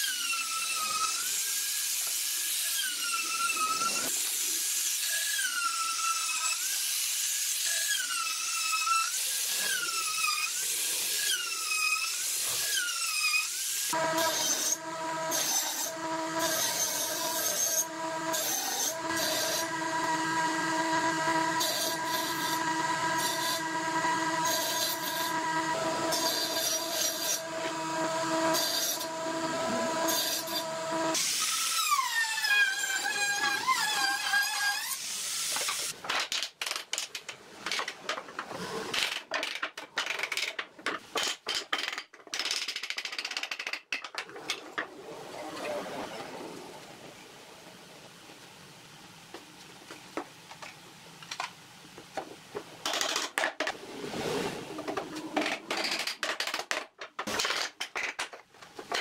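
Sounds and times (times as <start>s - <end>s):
power tool motor whining: 13.9s - 31.3s
low machine hum: 14.0s - 31.1s.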